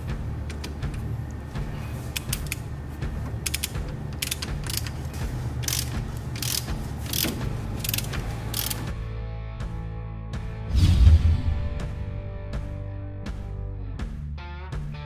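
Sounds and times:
hand ratchet clicking: 2.1 - 2.7, 3.4 - 5.0, 5.6 - 9.0.

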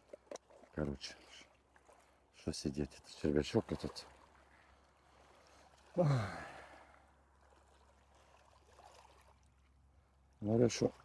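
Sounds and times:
man sighing: 5.9 - 7.0.

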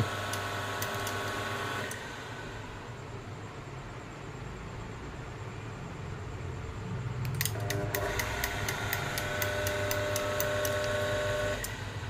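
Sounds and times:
regular ticking: 7.2 - 11.8
gate opener motor whining: 7.4 - 11.8.

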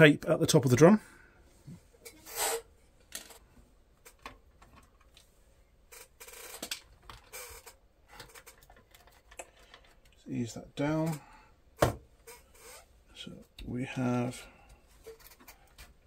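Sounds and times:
hands handling metal and plastic parts: 6.6 - 10.2.

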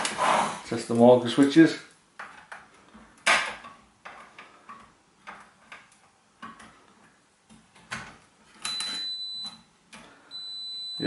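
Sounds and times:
multimeter continuity beep: 8.6 - 9.6, 10.3 - 11.0.

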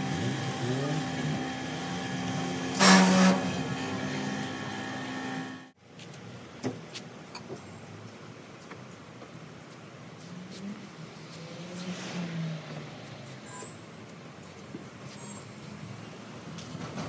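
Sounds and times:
pressure washer motor humming: 0.0 - 5.8.

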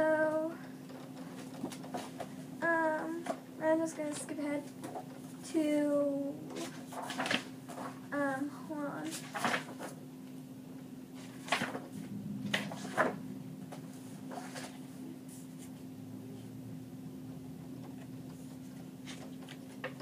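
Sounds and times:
steady low hum: 0.0 - 20.0
pages rustling and clacking: 1.0 - 2.4, 6.5 - 8.1, 9.0 - 10.0, 11.2 - 14.8, 18.3 - 20.0.

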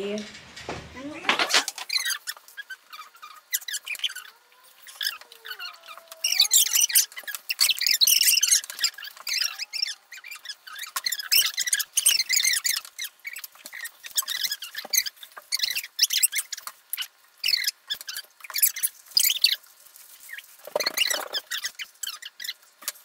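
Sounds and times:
aluminium foil crinkling: 1.0 - 23.0.

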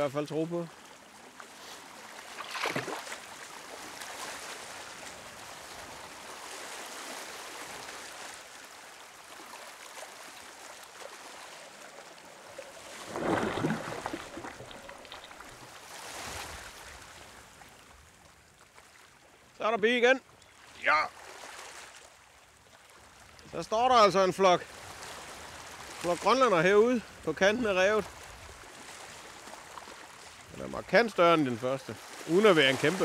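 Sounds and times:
seawater splashing and lapping: 0.0 - 19.6, 20.2 - 33.0
fish thrashing in water: 2.3 - 3.2, 12.6 - 16.3
loud splash: 2.3 - 3.2, 12.7 - 16.6.

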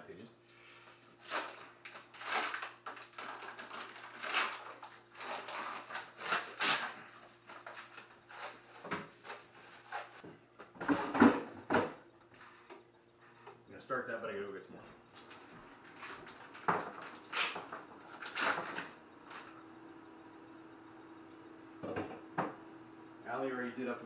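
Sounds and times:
faint steady hum: 0.0 - 24.0
plastic bag rustling: 1.2 - 10.2.

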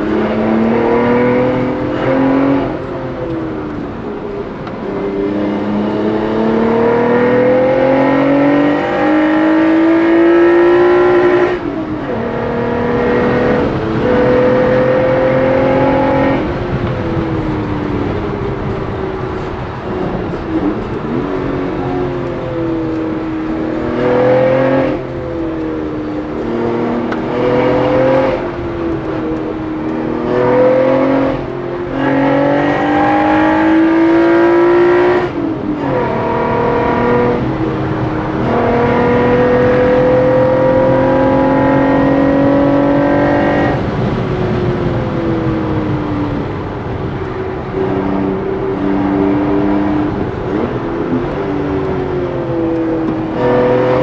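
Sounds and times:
car engine accelerating: 0.0 - 54.0.

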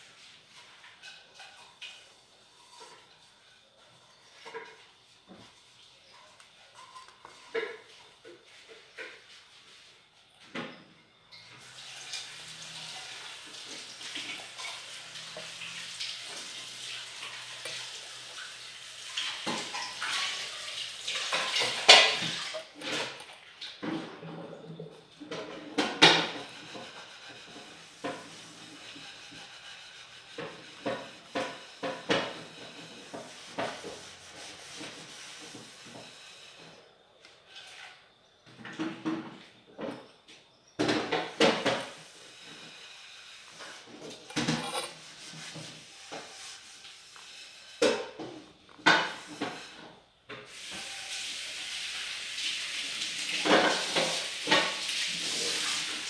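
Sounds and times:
steady hiss: 11.5 - 23.2, 40.8 - 56.0.

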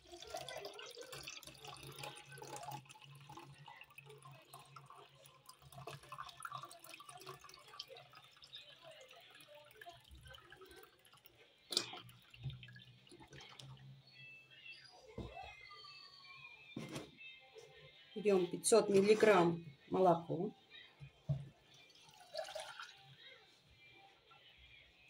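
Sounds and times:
milk pouring into a plastic jug: 0.0 - 14.6, 21.7 - 23.4.

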